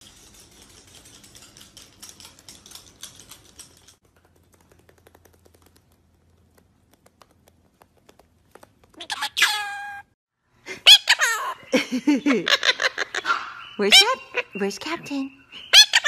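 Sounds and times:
claws clicking on tiled floor: 0:00.0 - 0:09.4.

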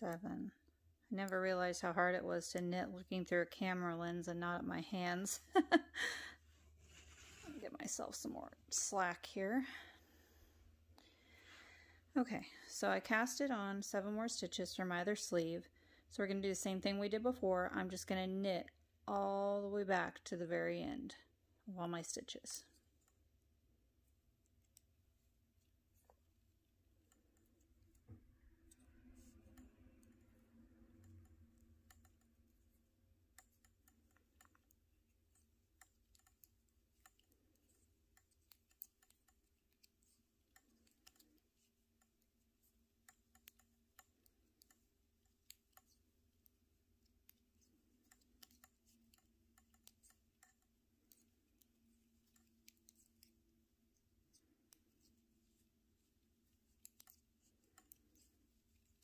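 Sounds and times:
metal knitting needles clicking: 0:26.9 - 0:59.0.

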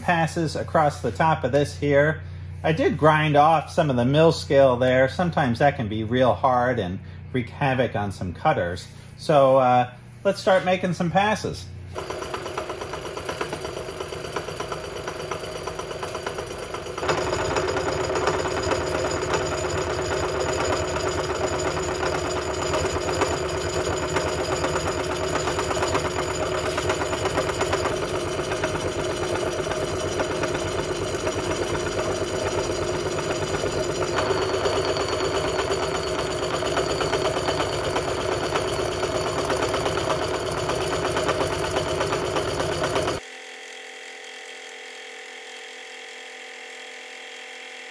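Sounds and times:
milling machine cutting steel: 0:12.0 - 0:43.2.

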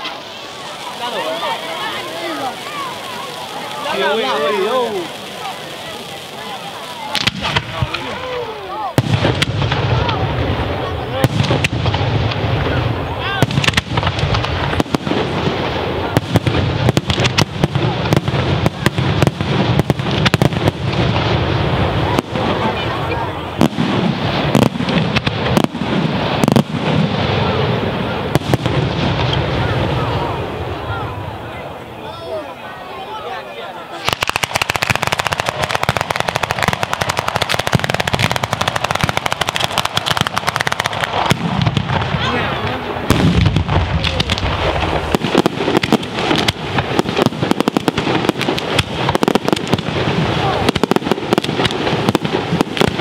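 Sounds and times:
firework shells bursting: 0:00.0 - 0:08.3, 0:13.4 - 0:22.6, 0:34.0 - 0:53.0
continuous fireworks rumble: 0:00.0 - 0:53.0.

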